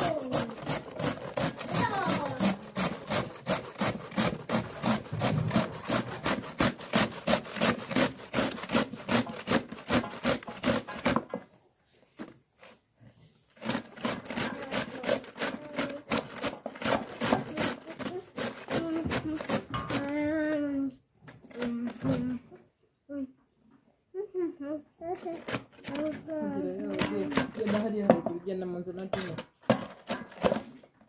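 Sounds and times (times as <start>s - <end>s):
beetroot grated on metal grater: 0.0s - 11.4s, 13.6s - 20.5s, 25.1s - 30.8s.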